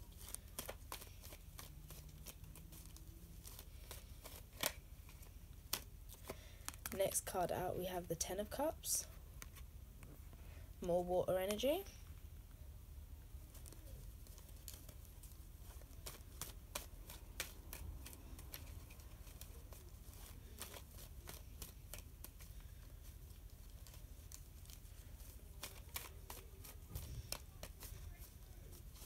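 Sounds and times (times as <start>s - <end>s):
cards shuffling by hand: 0.0s - 7.3s, 13.4s - 29.0s.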